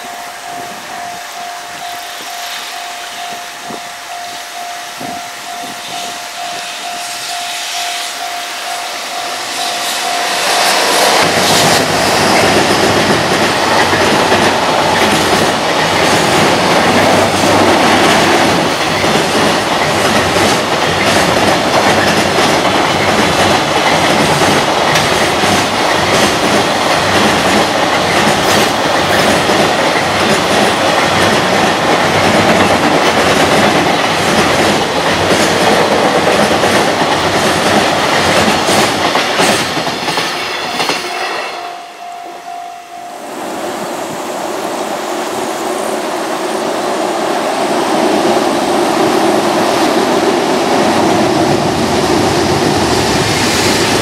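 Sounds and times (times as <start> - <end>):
train wheels rumbling on rail: 0.0 - 42.4, 43.2 - 54.0
wheels clacking over rail joints: 9.7 - 41.2.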